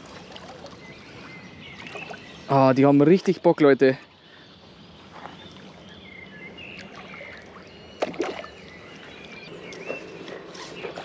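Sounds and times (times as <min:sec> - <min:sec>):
water splashing and sloshing: 0:00.0 - 0:02.6, 0:06.5 - 0:11.0.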